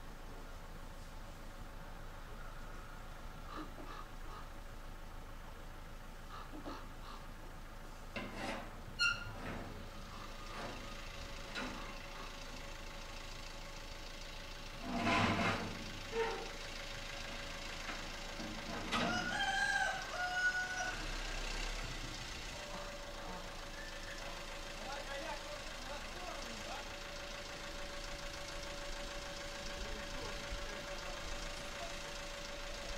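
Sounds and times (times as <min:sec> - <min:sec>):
faint vehicle engine: 0:00.0 - 0:32.9
rooster crowing: 0:19.0 - 0:21.3.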